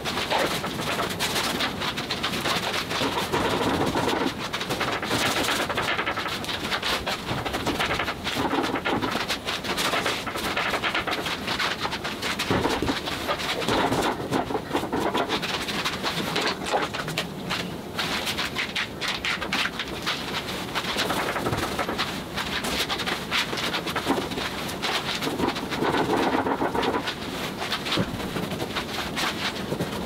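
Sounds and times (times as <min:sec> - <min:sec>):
paint brushing and scraping on canvas: 0:00.0 - 0:30.0
small irregular clicks: 0:00.0 - 0:30.0.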